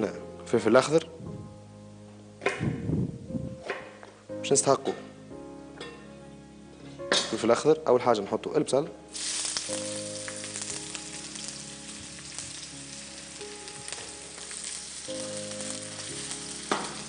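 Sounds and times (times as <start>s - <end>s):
onions sizzling in frying pan: 9.1s - 17.0s.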